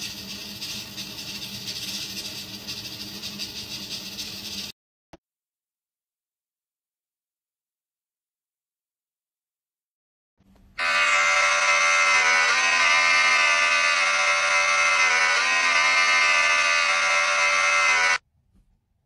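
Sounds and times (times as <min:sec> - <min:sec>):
electric shaver buzzing from phone: 0:10.8 - 0:18.2.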